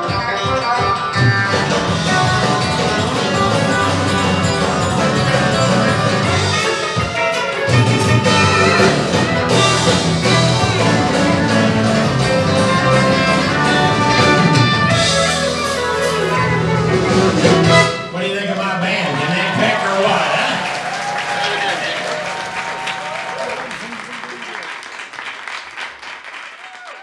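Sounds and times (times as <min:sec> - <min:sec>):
mandolin picking: 0:00.0 - 0:18.0
electric guitar lead: 0:00.0 - 0:18.2
country band playing: 0:00.0 - 0:23.7.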